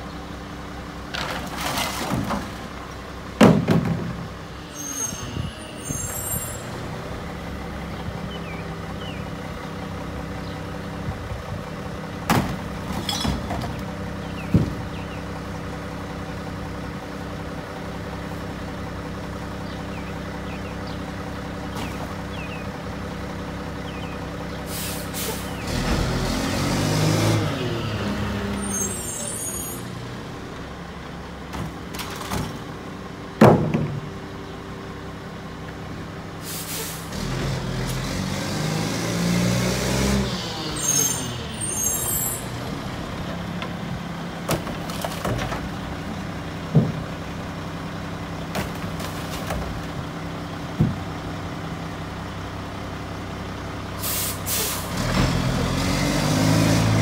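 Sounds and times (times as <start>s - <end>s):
garbage truck diesel engine: 0.0s - 57.0s
air-brake hisses: 24.7s - 25.5s, 36.4s - 37.1s, 54.0s - 54.9s.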